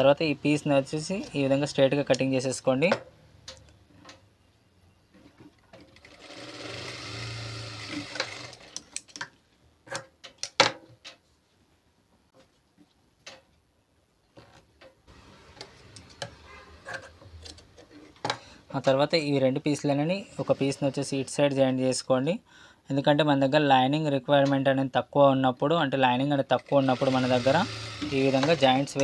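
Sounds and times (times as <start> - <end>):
sewing machine running: 5.9 - 8.8, 20.2 - 21.4, 26.8 - 29.0.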